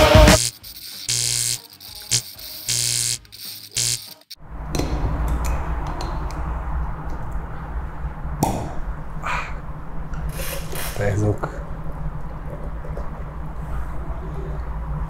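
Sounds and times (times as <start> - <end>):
gas hissing: 0.0 - 4.4
corkscrew clicks and creaks: 0.6 - 4.4, 10.2 - 11.1
low hum: 3.7 - 15.0.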